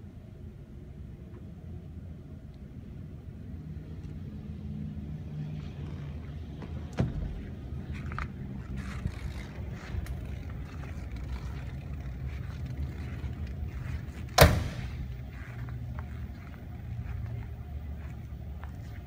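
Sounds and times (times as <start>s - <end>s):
steady low hum: 0.0s - 19.0s
car door slamming: 6.9s - 7.4s, 14.3s - 15.0s.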